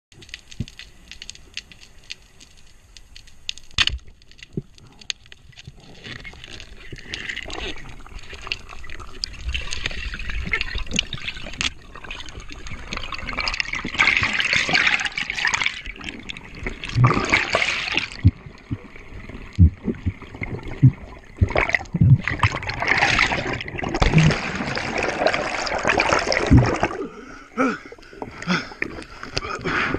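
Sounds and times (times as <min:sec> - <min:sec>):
underwater rushing bubbling water: 0:06.4 - 0:27.4.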